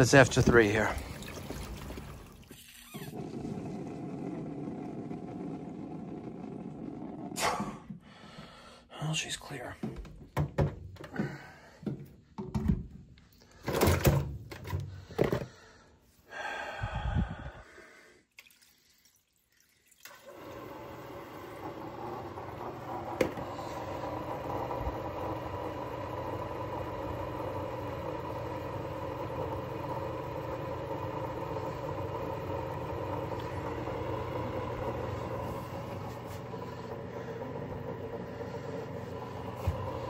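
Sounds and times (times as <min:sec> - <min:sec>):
pump motor humming: 0:00.0 - 0:06.7, 0:20.0 - 0:40.0
knocks and rattles of pump handling: 0:09.8 - 0:15.6.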